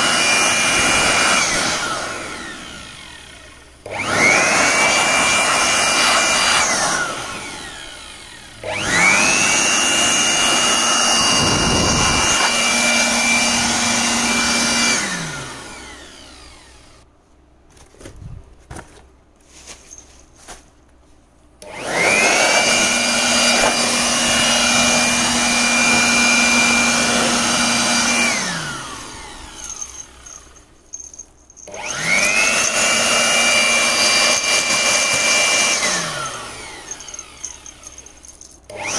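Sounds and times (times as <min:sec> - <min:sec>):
electric blower whining: 0:00.0 - 0:17.0, 0:21.6 - 0:38.9
rush of air: 0:11.2 - 0:12.5.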